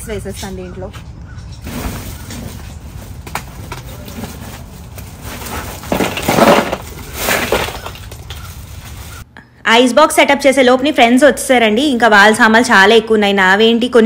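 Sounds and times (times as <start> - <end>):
ice cubes poured into cooler: 5.2 - 8.2.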